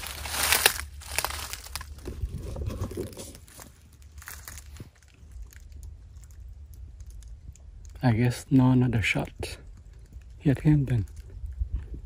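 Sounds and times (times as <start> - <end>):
dry leaves crunching and rustling: 0.0 - 7.2.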